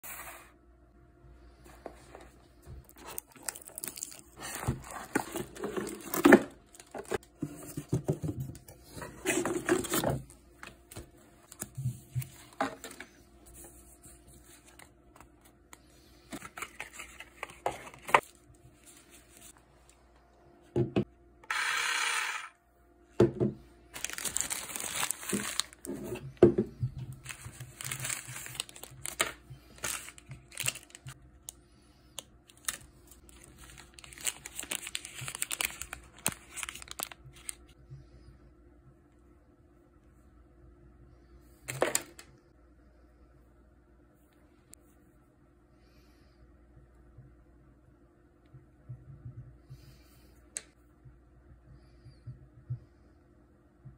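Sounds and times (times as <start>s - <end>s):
plastic packaging crinkling: 2.8s - 7.2s, 23.9s - 26.2s, 27.1s - 31.2s, 32.2s - 37.7s.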